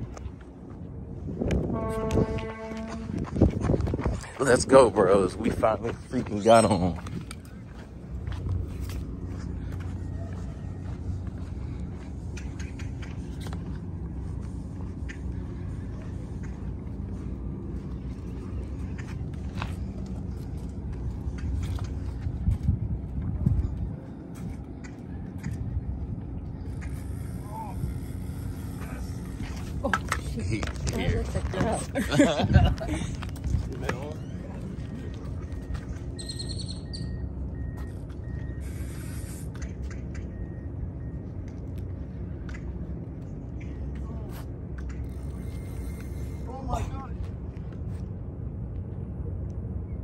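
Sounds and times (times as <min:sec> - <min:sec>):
wind noise on microphone: 0:00.0 - 0:04.7, 0:20.4 - 0:35.9
faint bird chirps: 0:35.9 - 0:37.2.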